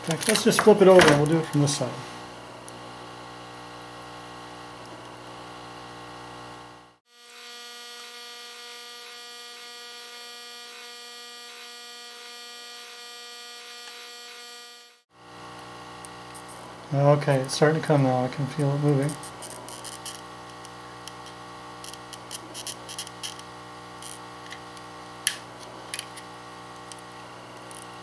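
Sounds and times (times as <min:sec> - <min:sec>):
hot air rework station humming: 0:00.0 - 0:07.0, 0:15.2 - 0:28.0.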